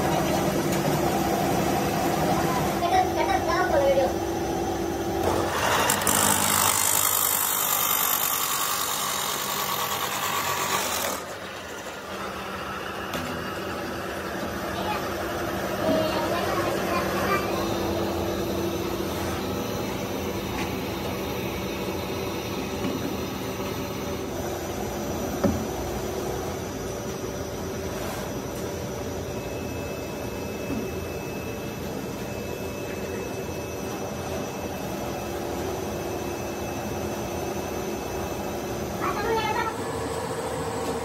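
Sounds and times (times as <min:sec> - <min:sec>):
machine humming: 0:00.0 - 0:41.0.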